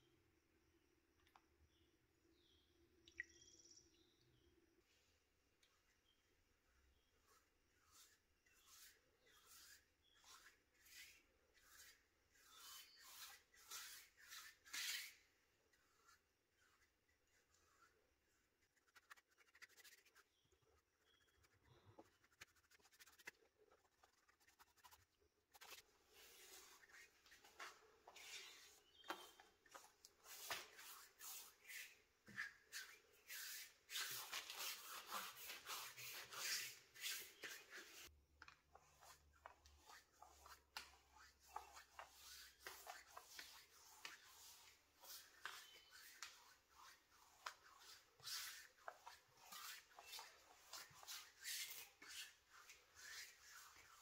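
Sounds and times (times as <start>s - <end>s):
brush scratching on wood: 6.9s - 38.1s, 38.7s - 54.0s
hand rubbing finish onto wood: 7.2s - 38.1s.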